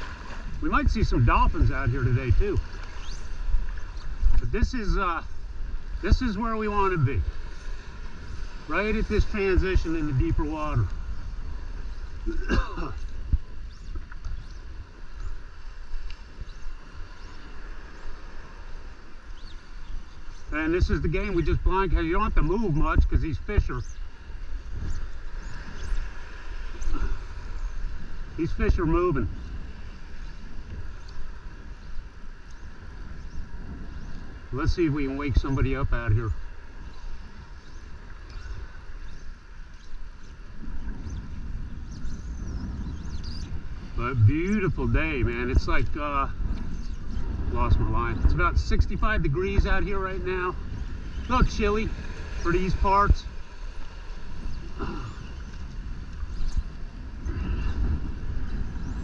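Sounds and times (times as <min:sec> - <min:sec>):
seawater lapping: 0:00.0 - 0:42.5
wind rumbling on microphone: 0:00.0 - 0:59.0.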